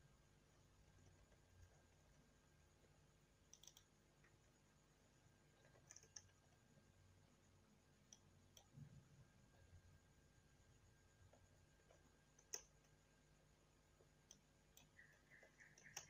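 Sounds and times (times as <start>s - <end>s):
keyboard and mouse clicks: 3.5s - 4.4s, 5.6s - 6.6s, 11.3s - 12.9s, 14.2s - 16.0s.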